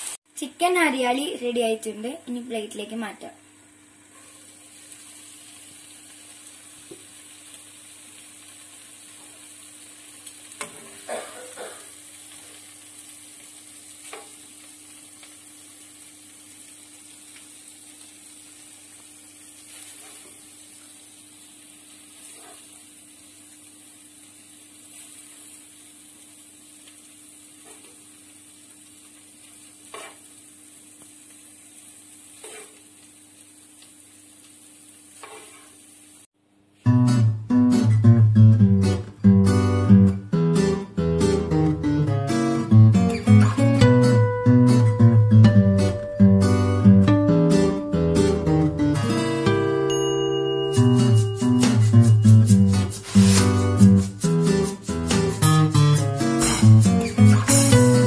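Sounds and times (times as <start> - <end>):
chicken sizzling in frying pan: 0.0 - 36.3, 37.7 - 58.0
spatula scraping and tapping pan: 29.9 - 30.2, 32.4 - 32.8, 35.2 - 35.7.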